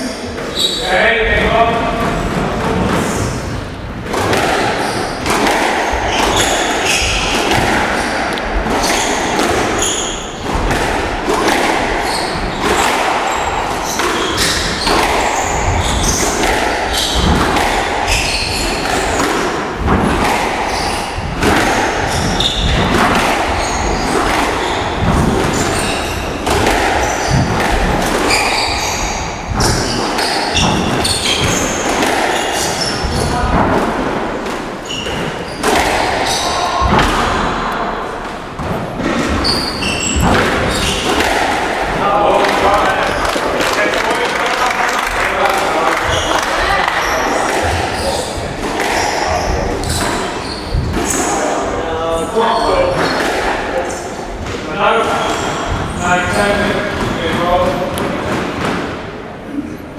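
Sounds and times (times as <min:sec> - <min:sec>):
squash ball hitting rackets and walls: 0:00.2 - 0:59.4
shoes squeaking on floor: 0:00.4 - 0:01.0, 0:04.3 - 0:10.5, 0:11.3 - 0:33.6, 0:34.7 - 0:37.8, 0:39.0 - 0:41.1, 0:45.8 - 0:53.2, 0:54.7 - 0:57.9.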